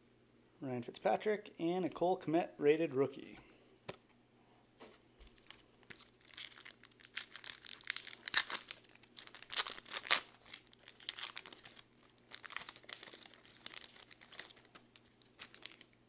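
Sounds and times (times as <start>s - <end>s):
foil wrapper crinkling: 5.2s - 16.0s.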